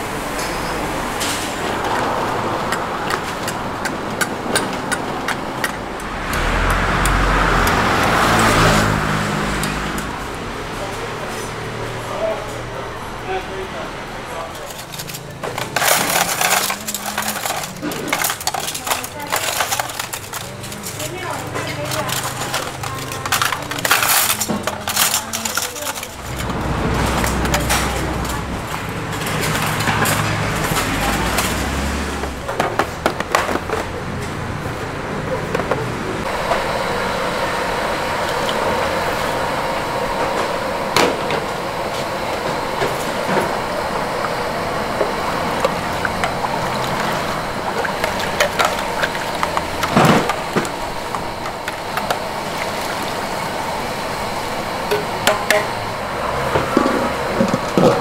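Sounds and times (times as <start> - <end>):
background voices: 0.0 - 32.6
cookware and utensils clattering: 14.4 - 34.0.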